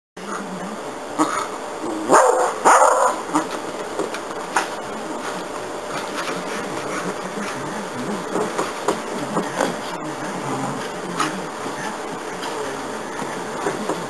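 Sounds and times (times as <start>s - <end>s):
dog barking: 2.1s - 3.5s.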